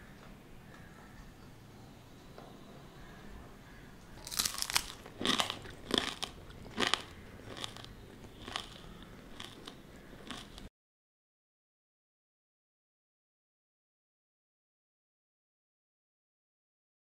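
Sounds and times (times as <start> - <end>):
crunchy chewing: 4.1 - 10.7.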